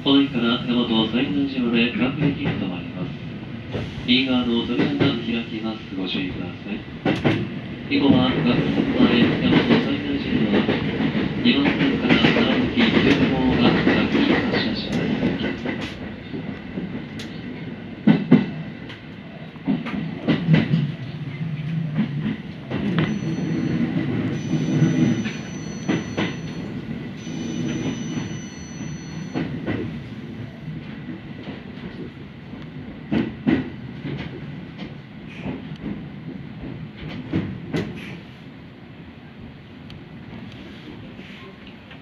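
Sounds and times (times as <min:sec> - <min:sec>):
low train rumble: 0:00.0 - 0:42.0
train wheels clacking: 0:07.0 - 0:07.5, 0:08.1 - 0:19.0, 0:19.6 - 0:20.9, 0:21.9 - 0:30.0, 0:30.8 - 0:38.3.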